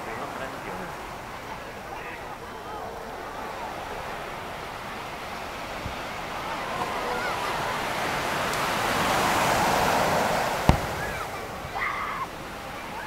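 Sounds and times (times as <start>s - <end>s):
faint voices calling out: 0.0s - 13.0s
surf washing onto beach: 0.0s - 13.0s
firework bang: 10.5s - 11.8s.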